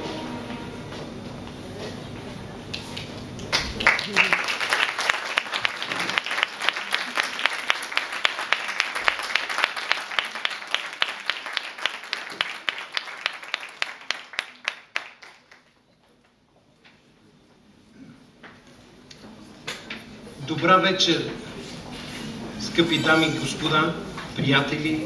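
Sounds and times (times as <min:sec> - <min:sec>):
audience applauding: 0:02.8 - 0:15.8.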